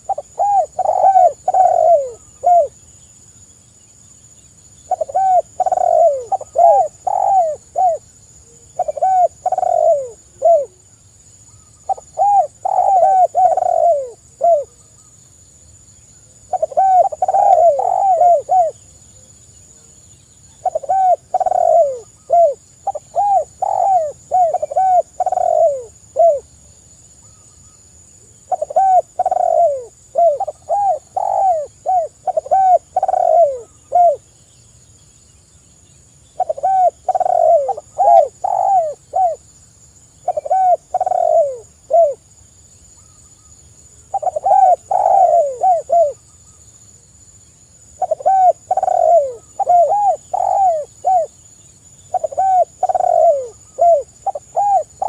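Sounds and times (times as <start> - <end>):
dove cooing: 0.0 - 2.8, 4.9 - 10.8, 11.8 - 14.8, 16.4 - 19.0, 20.5 - 26.5, 28.4 - 34.3, 36.4 - 39.4, 40.2 - 42.2, 44.0 - 46.3, 48.0 - 51.4, 52.1 - 55.0.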